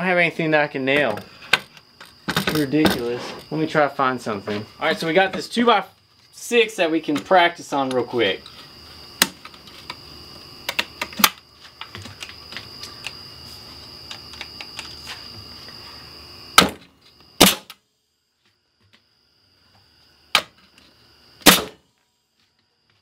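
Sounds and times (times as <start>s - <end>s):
nail gun firing: 16.6s - 16.8s, 17.4s - 17.8s, 21.4s - 21.8s.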